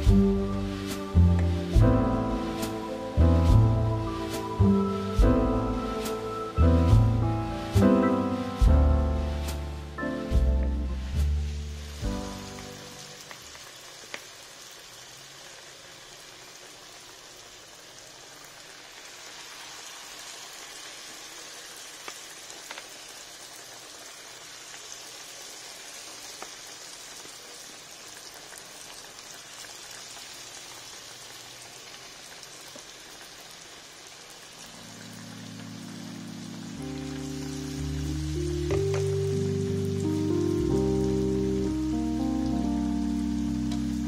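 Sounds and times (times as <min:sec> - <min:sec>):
soft background music: 0:00.0 - 0:13.3, 0:34.7 - 0:44.0
food deep-frying in oil: 0:00.0 - 0:44.0.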